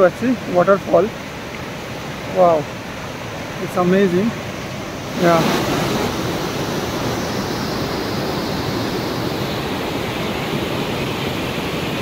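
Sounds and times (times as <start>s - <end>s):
river rushing through rapids: 0.0s - 12.0s.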